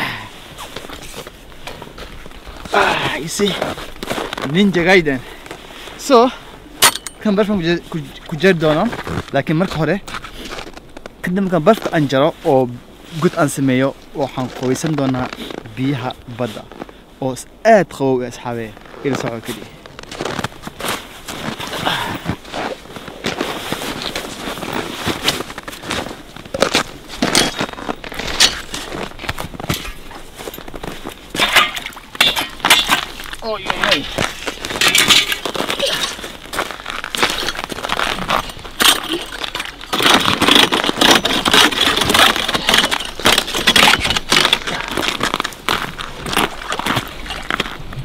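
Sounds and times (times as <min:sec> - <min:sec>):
crunching on snow and ice: 0:00.0 - 0:17.1, 0:18.4 - 0:48.0
sharp ice cracks: 0:25.2 - 0:30.0, 0:31.3 - 0:47.8.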